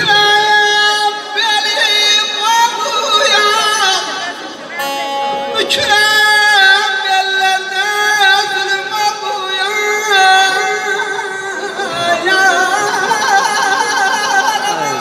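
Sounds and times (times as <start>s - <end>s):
long-necked lute playing: 0.0s - 15.0s.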